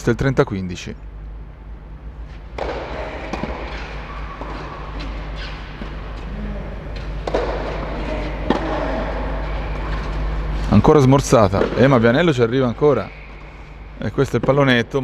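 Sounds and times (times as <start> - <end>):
steady low hum: 0.0 - 15.0
tennis racket hitting ball: 2.5 - 6.3, 7.0 - 10.1.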